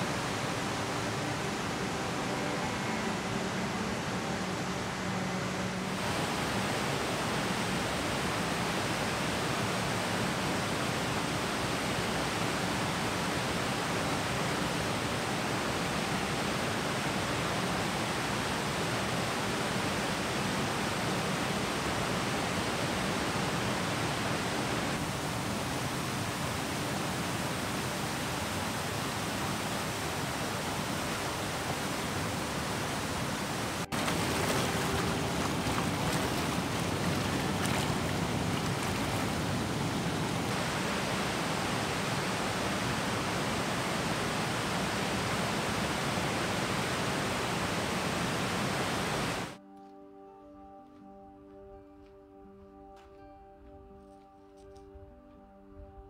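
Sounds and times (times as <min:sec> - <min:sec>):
river rapids rushing: 0:00.0 - 0:49.6
water splashing over rock: 0:33.8 - 0:40.6.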